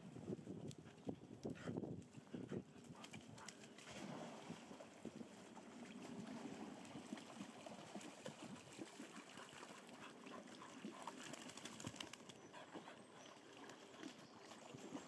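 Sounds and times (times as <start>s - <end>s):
dog splashing in water: 3.0s - 4.7s, 5.9s - 12.4s.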